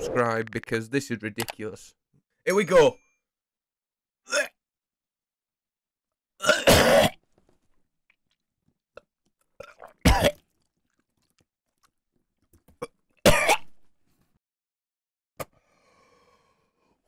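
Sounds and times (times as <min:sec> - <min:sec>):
man coughing and gagging: 0:06.4 - 0:07.2, 0:10.0 - 0:10.4, 0:13.2 - 0:13.7.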